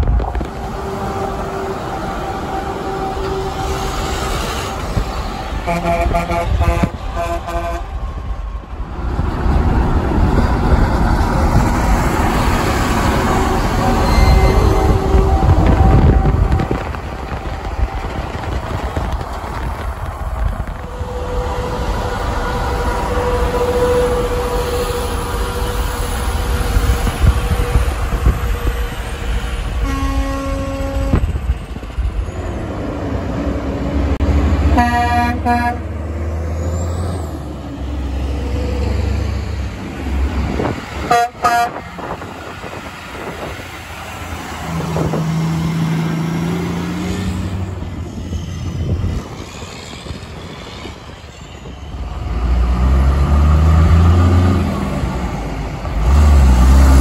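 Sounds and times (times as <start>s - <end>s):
heavy diesel engines and traffic: 0.0s - 57.0s
truck air horn blasts: 0.6s - 4.8s, 5.5s - 8.0s, 13.2s - 16.9s, 22.7s - 26.0s, 29.8s - 31.3s, 34.7s - 36.0s, 41.0s - 42.1s
truck engine pulling away: 51.8s - 57.0s.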